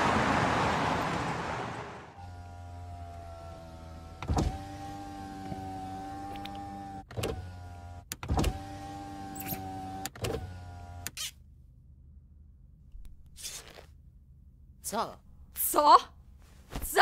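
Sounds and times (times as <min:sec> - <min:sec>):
power window motor whining: 0:02.2 - 0:11.4.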